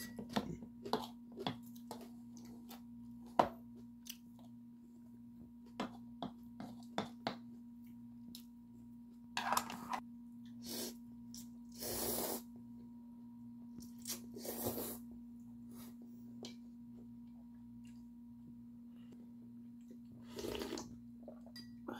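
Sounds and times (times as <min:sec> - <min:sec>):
low steady hum: 0:00.0 - 0:21.9
noodles slurped: 0:20.2 - 0:21.0.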